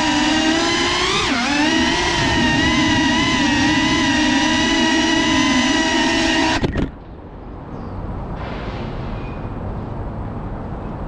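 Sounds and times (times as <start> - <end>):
drone propellers whining: 0.0 - 7.0
low outdoor background noise: 0.0 - 11.0.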